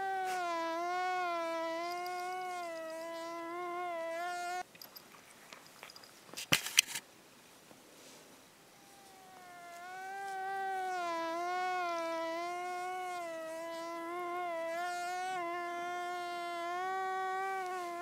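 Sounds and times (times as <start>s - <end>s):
mosquito whine: 0.0s - 4.7s, 8.7s - 18.0s.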